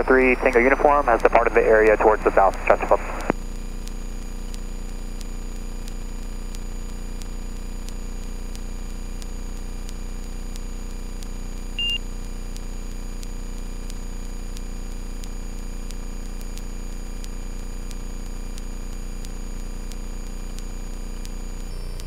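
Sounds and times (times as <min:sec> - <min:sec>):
short electronic beep: 0:11.8 - 0:12.0.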